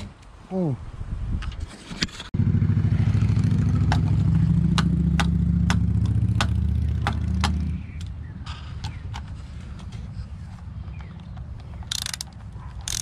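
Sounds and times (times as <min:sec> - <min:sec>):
socket ratchet clicking: 0:11.1 - 0:13.0.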